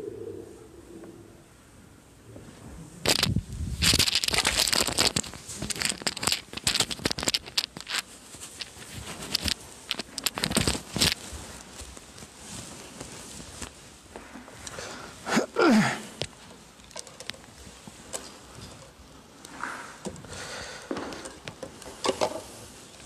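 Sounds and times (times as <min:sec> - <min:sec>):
clothing rustling and crinkling: 0:02.3 - 0:23.0.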